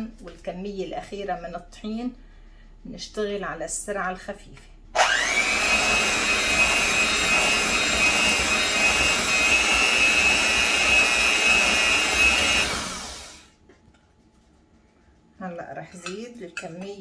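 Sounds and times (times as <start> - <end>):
electric hand mixer whirring: 5.0 - 13.5.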